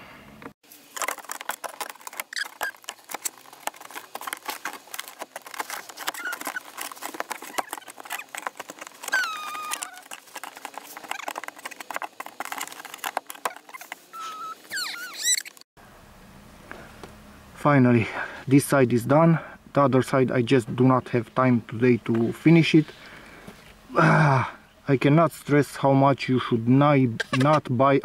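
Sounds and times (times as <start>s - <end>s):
plastic grille clicking and rattling: 1.0s - 14.1s
short high squeaks: 1.8s - 15.7s, 27.2s - 27.6s.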